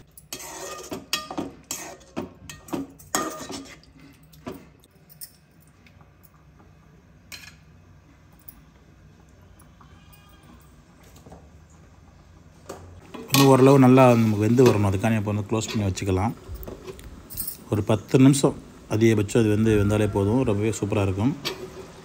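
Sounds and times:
metal spoon scraping a pot: 0.0s - 4.0s.

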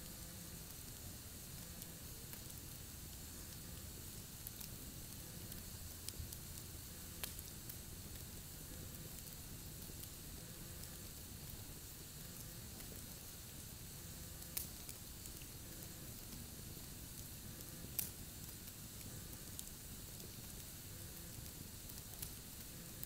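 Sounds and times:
campfire hissing and crackling: 0.0s - 23.0s
sharp fire pops: 1.8s - 8.3s, 14.4s - 22.7s.

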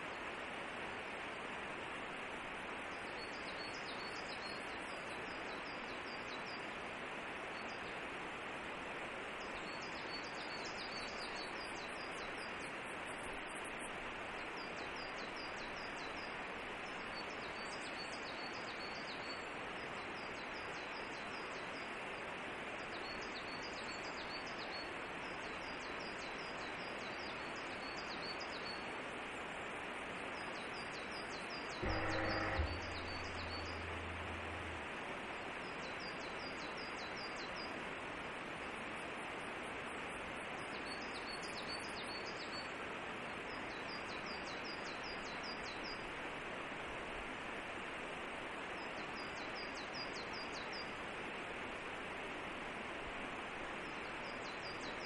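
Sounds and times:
forest ambience hiss: 0.0s - 55.0s
faint high chirps: 31.8s - 34.9s.

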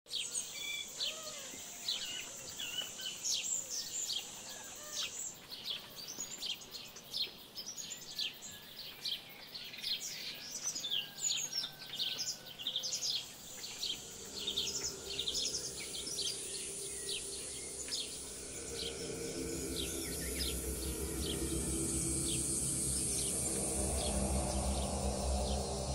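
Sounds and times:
birds chirping: 0.2s - 25.9s
steady high buzz: 12.9s - 25.9s
low steady hum: 13.2s - 25.9s.

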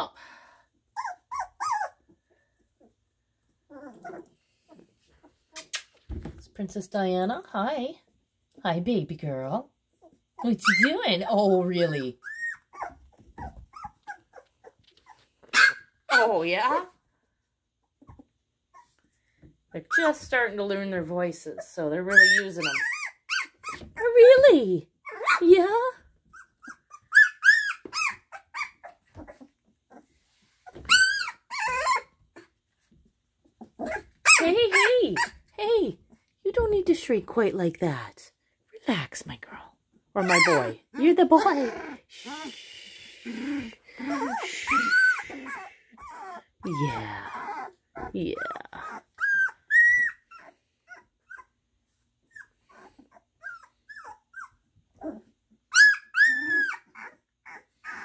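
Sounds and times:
puppies squealing and yelping: 0.9s - 6.0s, 9.9s - 11.0s, 11.8s - 16.8s, 19.8s - 20.3s, 22.1s - 24.2s, 25.0s - 32.7s, 33.4s - 35.6s, 40.2s - 58.0s.

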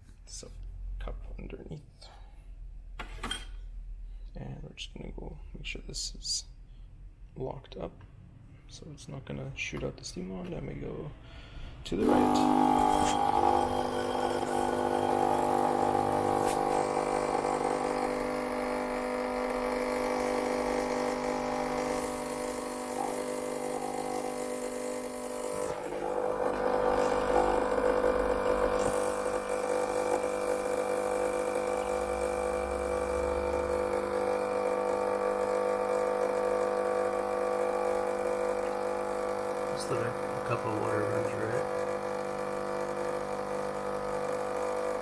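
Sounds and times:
espresso machine pump humming: 11.9s - 45.0s.

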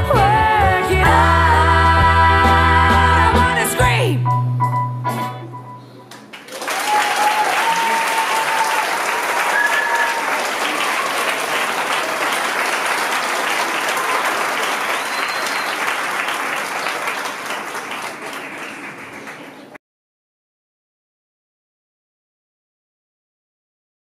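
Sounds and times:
audience applauding: 6.1s - 19.8s
cheers: 6.4s - 19.0s.

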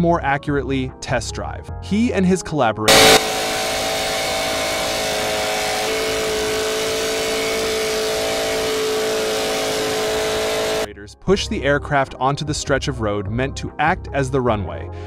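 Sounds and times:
small aircraft engine running: 2.9s - 10.9s.

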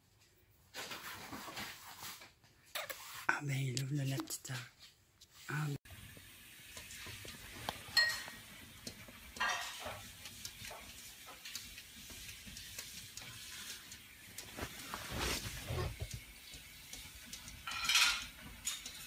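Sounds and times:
light ticks and scrapes: 6.7s - 19.0s
tableware clatter: 7.9s - 8.4s, 9.4s - 10.1s, 17.6s - 19.0s
tableware clinking: 7.9s - 8.4s, 9.4s - 10.0s, 17.6s - 19.0s.

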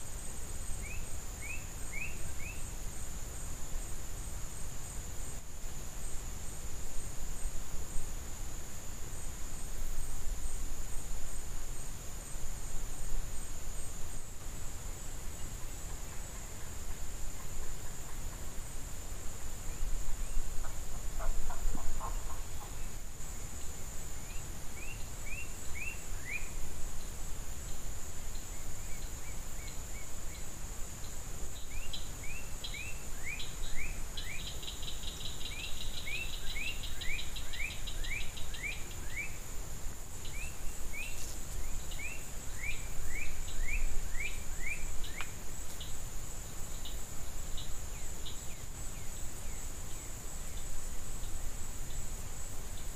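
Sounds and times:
high-pitched insect buzz: 19.5s - 52.9s.

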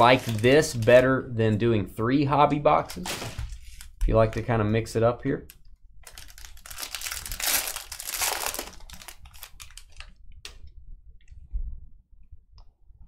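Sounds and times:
foil wrapper crinkling: 0.0s - 1.1s, 6.0s - 10.2s.

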